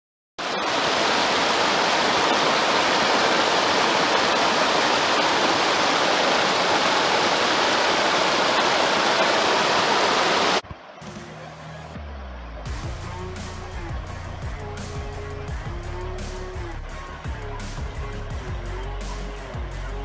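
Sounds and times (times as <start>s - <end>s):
river rushing over rocks: 0.4s - 10.6s.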